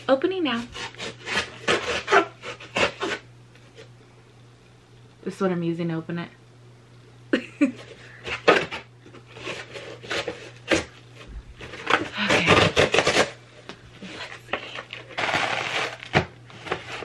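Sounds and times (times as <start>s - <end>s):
cardboard scraping and rustling: 8.3s - 13.4s, 14.0s - 17.0s.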